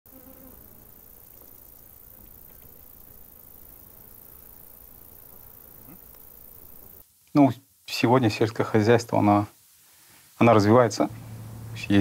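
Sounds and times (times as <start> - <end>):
low hiss: 0.1 - 12.0
tiny ticks: 2.2 - 2.9, 5.8 - 7.5.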